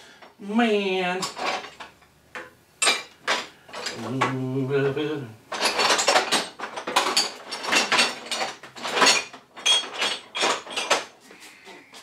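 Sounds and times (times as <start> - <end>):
metal hand tools clattering: 1.2 - 4.4, 5.5 - 11.2.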